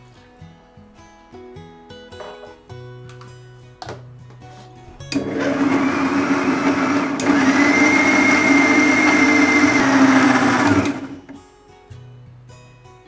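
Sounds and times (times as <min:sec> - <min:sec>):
electric mixer grinder running: 0:05.0 - 0:11.4.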